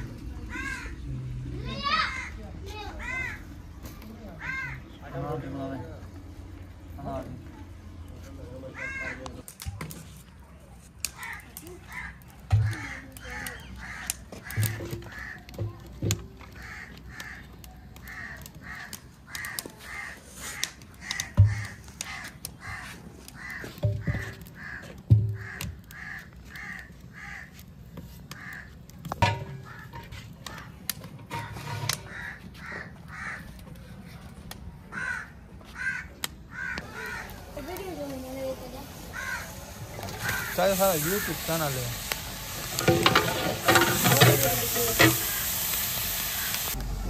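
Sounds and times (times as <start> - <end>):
crows cawing: 0.0 - 1.1, 1.7 - 3.6, 4.3 - 5.0, 8.6 - 9.4, 11.1 - 15.8, 16.4 - 27.7, 28.3 - 30.8, 31.4 - 33.8, 34.9 - 37.9, 38.9 - 45.6
metal pots knocking on bricks: 14.5 - 16.2, 23.8 - 25.4, 29.1 - 30.2, 31.2 - 32.2, 42.6 - 45.4.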